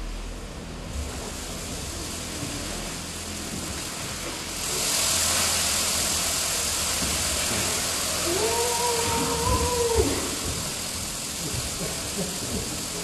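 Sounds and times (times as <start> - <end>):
fan blowing air: 0.0 - 13.0
person squealing: 8.2 - 10.2.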